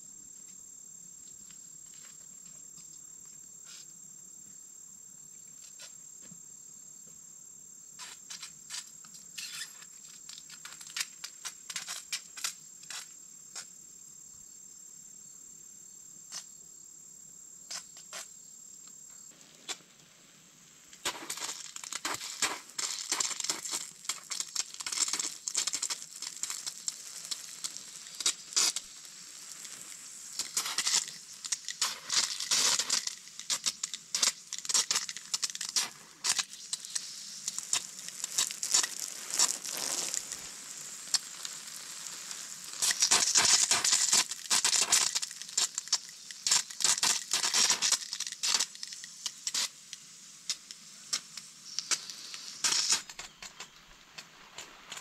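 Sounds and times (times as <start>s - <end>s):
hose water spraying onto soil: 19.3s - 55.0s.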